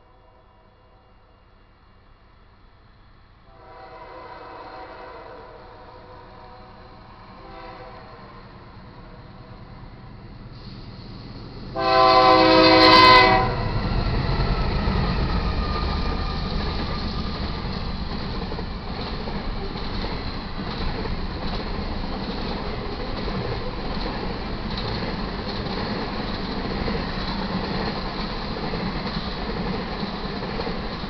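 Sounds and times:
train rumble and rail noise: 0.0s - 31.0s
diesel locomotive horn: 3.5s - 8.5s, 11.7s - 13.8s.

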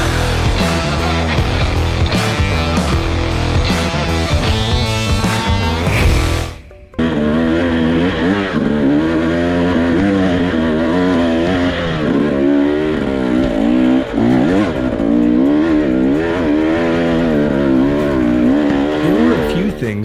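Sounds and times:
dirt bike engine revving: 0.0s - 20.0s.

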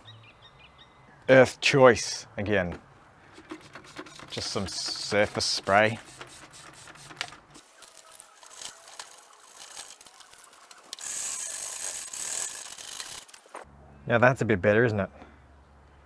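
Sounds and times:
brush scrubbing metal: 3.3s - 13.4s
spray bottle squirts: 3.3s - 13.4s.

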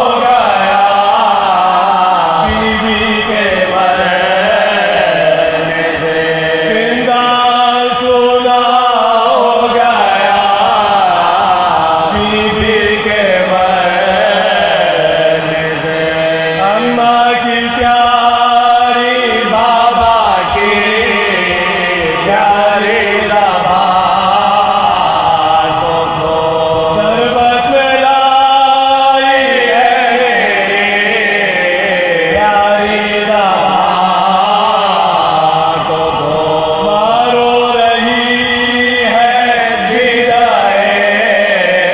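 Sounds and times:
men chanting a lament: 0.0s - 41.9s.

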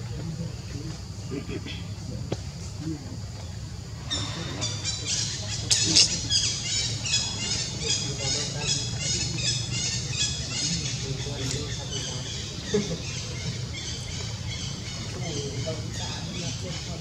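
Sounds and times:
steady low hum: 0.0s - 17.0s
high-pitched chirping animal calls: 4.0s - 17.0s.

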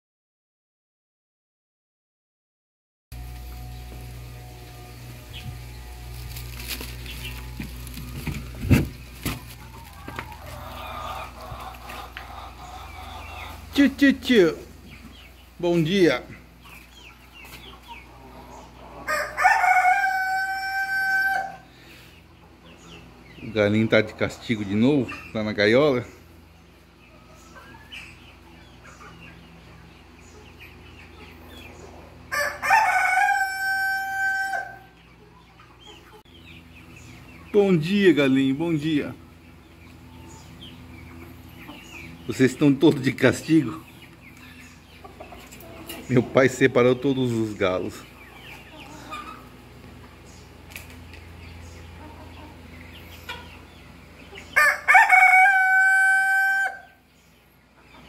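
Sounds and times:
rooster crowing: 19.0s - 21.7s, 32.3s - 35.0s, 54.5s - 57.0s.

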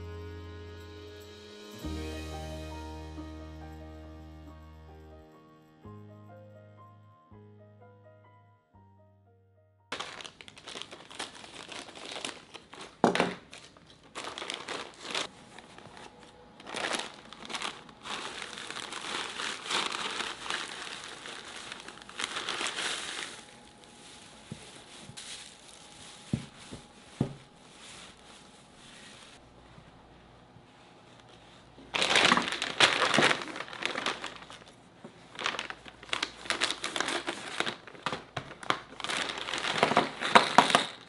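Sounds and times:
plastic bag crinkling: 9.9s - 29.4s, 31.9s - 41.0s
paper grass rustling: 9.9s - 29.7s, 31.0s - 40.7s.

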